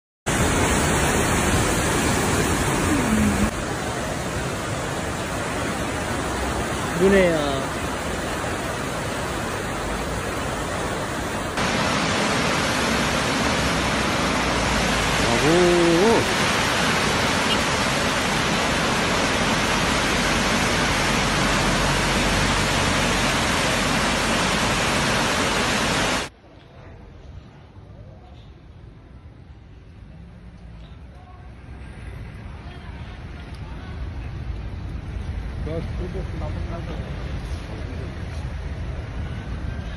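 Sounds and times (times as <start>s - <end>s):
floodwater rushing: 0.3s - 26.3s.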